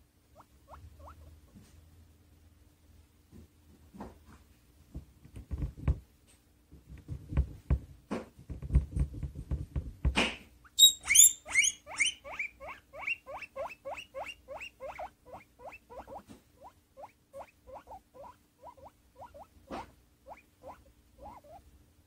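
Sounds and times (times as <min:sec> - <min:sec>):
guinea pig squeaking: 0:00.3 - 0:01.6, 0:10.6 - 0:21.7
knock: 0:07.0 - 0:10.4.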